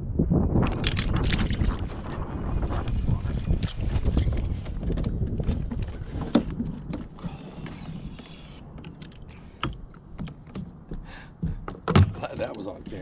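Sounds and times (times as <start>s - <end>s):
sharp knocks on hull: 11.4s - 12.5s.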